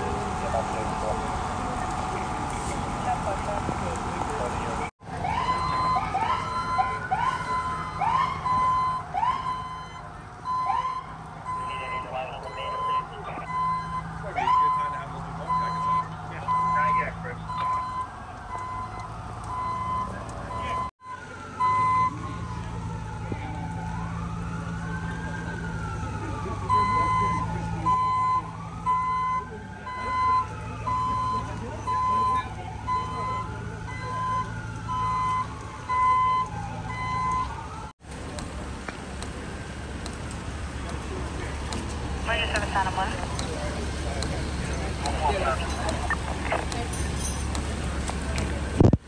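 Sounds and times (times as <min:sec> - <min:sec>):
faint siren wail: 0:00.0 - 0:48.9
idling engines hum: 0:00.0 - 0:49.0
siren whoops: 0:04.3 - 0:37.9
reversing alarm beeps: 0:05.4 - 0:22.4, 0:26.6 - 0:37.6.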